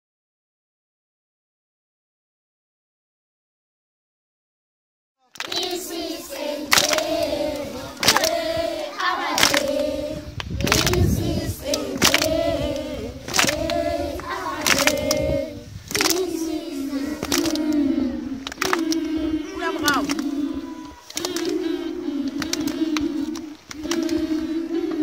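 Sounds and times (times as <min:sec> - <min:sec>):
hands clapping: 0:05.3 - 0:25.0
children singing in unison: 0:05.4 - 0:25.0.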